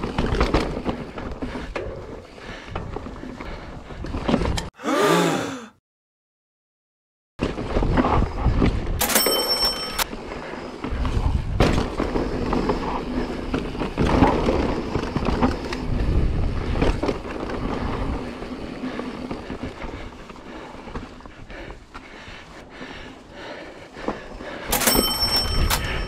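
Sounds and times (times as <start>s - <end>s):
bike tyres rolling over rocks: 0.0s - 4.5s, 10.1s - 22.2s
bike rattling: 0.0s - 4.6s, 7.4s - 26.0s
wind rumbling on microphone: 10.9s - 18.6s.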